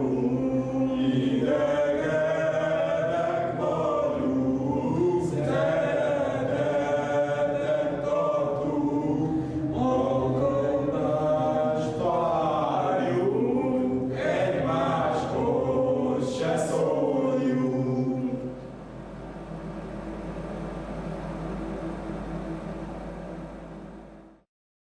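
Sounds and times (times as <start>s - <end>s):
men singing in chorus: 0.0s - 18.6s.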